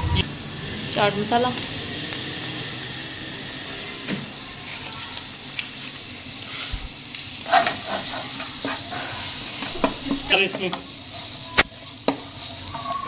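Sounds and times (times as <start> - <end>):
vegetables sizzling in oil: 0.0 - 13.0
spatula knocking and scraping: 7.5 - 10.8.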